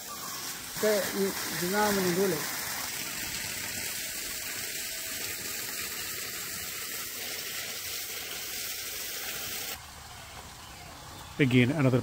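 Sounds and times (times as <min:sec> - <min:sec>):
water spraying: 0:00.0 - 0:12.0.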